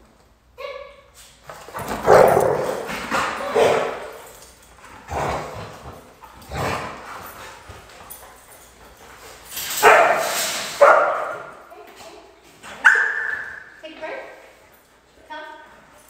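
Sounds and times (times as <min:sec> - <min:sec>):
dogs barking: 0:02.0 - 0:04.1, 0:09.8 - 0:11.6, 0:12.8 - 0:13.6.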